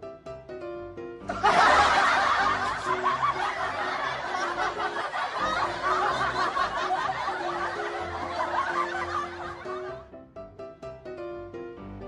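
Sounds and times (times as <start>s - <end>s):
light background music: 0.0s - 12.0s
laugh track: 1.3s - 10.1s.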